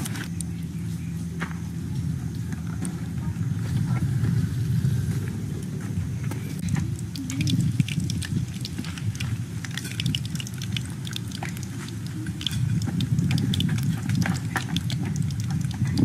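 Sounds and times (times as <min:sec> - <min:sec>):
low rumble: 0:00.0 - 0:16.0
wood fire crackling: 0:06.6 - 0:16.0.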